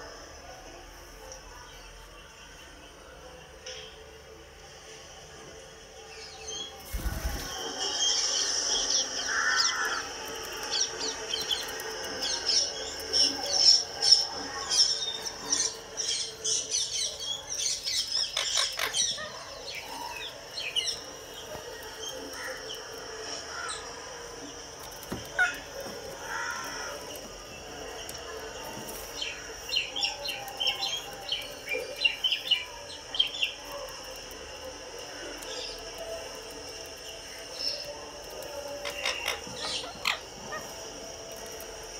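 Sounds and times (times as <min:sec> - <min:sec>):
parakeets chirping and squawking: 0:06.9 - 0:24.0, 0:38.8 - 0:41.2.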